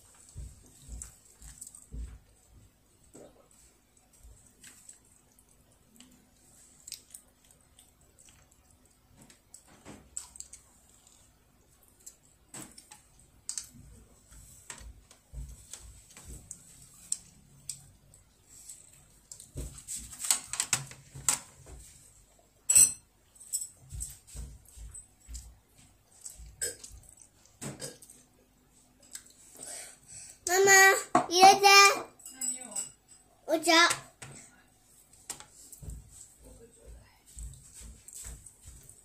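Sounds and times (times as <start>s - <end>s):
soft chewing: 0.0s - 20.2s, 23.2s - 29.6s, 34.4s - 39.0s.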